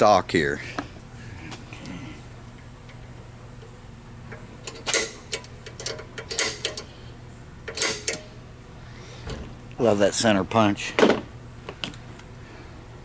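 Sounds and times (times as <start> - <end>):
center punch clicking on steel: 7.7 - 8.3.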